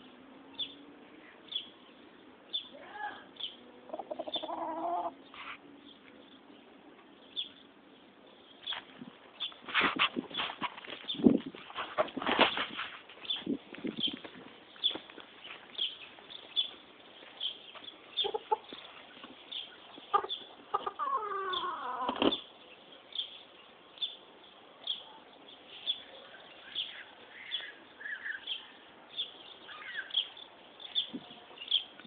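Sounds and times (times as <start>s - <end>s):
chicken calls: 3.9s - 5.6s, 17.7s - 22.5s.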